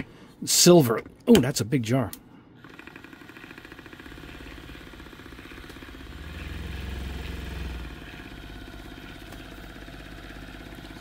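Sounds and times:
paint mixer buzzing rattle: 0:02.6 - 0:11.0.

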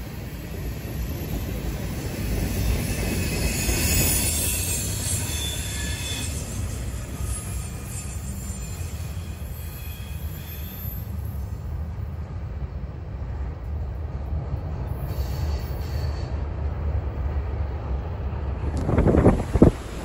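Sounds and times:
freight train cars rolling: 0:00.0 - 0:20.0
faint wheel squeal: 0:00.8 - 0:11.6, 0:14.9 - 0:16.4.

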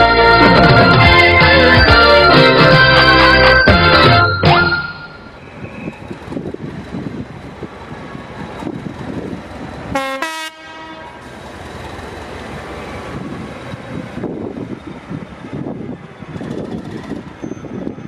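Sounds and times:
diesel engine rumbling: 0:00.0 - 0:18.0
train horn blast: 0:09.9 - 0:11.2.

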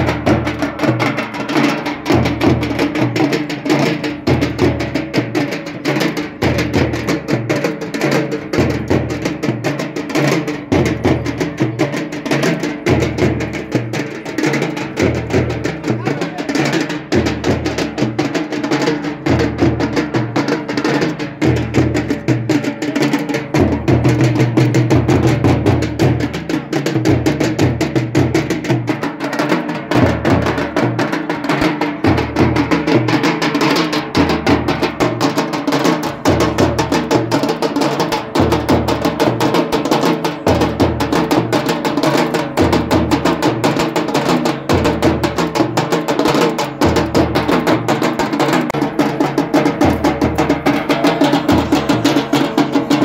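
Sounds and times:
snare drums beaten rapidly: 0:00.0 - 0:53.0
bass drum beat: 0:46.7 - 0:53.0.

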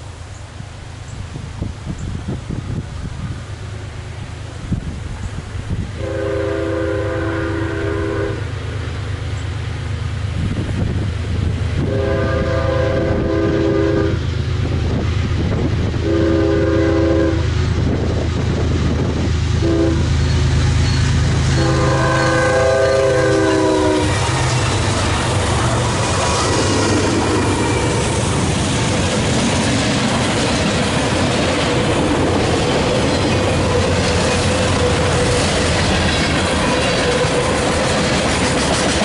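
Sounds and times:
deep engine rumble: 0:02.7 - 0:39.0
locomotive air horn: 0:06.0 - 0:08.6, 0:11.8 - 0:14.3, 0:16.0 - 0:17.5, 0:19.6 - 0:20.4, 0:21.4 - 0:24.4.

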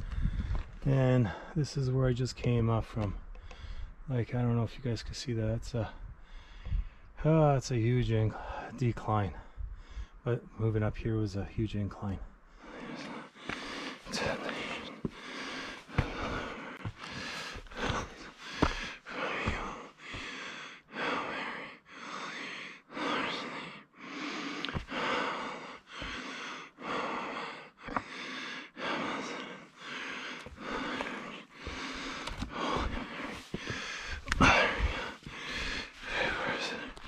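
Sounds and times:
person breathing hard: 0:03.4 - 0:04.0, 0:06.2 - 0:07.1, 0:12.5 - 0:37.0.

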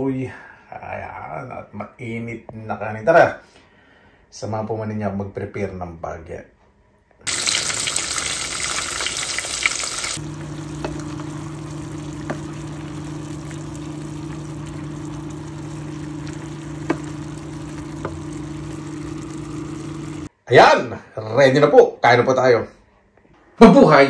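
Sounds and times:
food sizzling in a pan: 0:07.3 - 0:20.3
steady low hum: 0:10.2 - 0:20.3.

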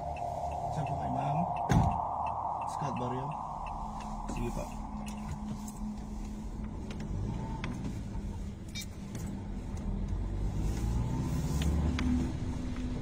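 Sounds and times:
car engine and road rumble: 0:00.0 - 0:13.0.

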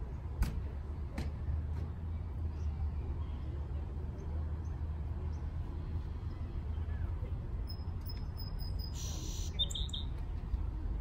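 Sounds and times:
low outdoor rumble: 0:00.0 - 0:11.0
faint bird chirps: 0:07.6 - 0:10.2.

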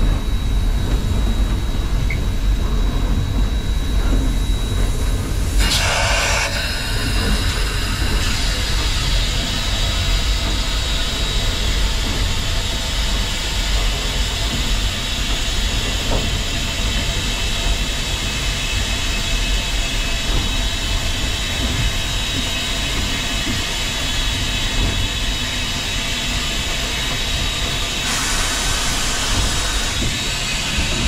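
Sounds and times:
steam locomotive rumble: 0:00.0 - 0:31.0
steam hiss: 0:05.5 - 0:11.9, 0:27.5 - 0:31.0.

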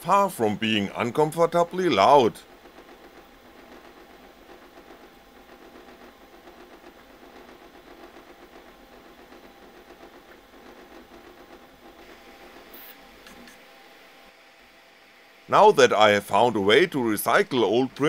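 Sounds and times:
stepper motors humming: 0:00.0 - 0:14.4
cooling fans running: 0:00.0 - 0:18.0.

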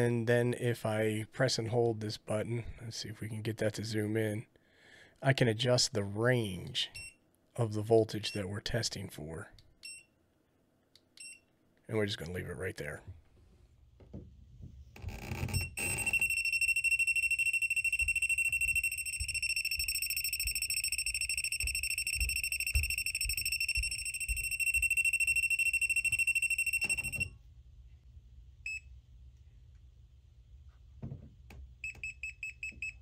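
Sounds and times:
high-pitched alarm beep: 0:15.5 - 0:27.4.

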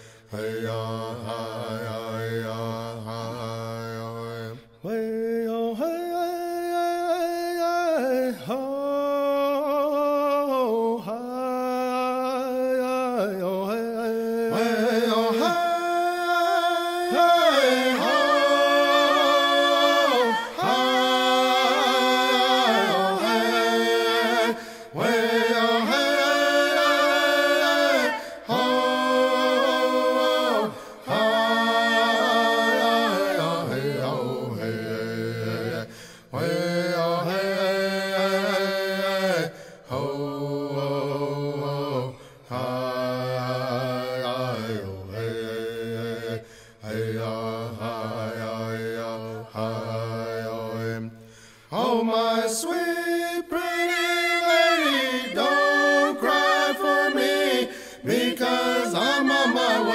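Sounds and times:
person singing unaccompanied: 0:54.0 - 0:59.9.

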